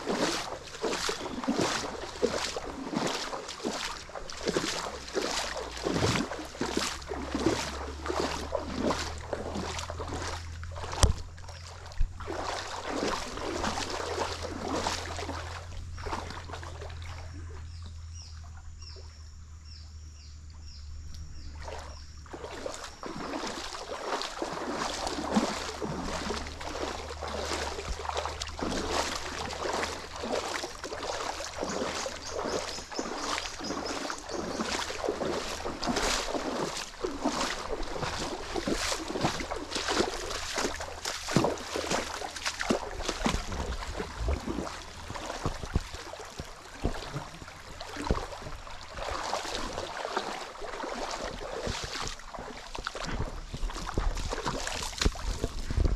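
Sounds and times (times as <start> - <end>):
water splashing in a stream: 0.0 - 55.9.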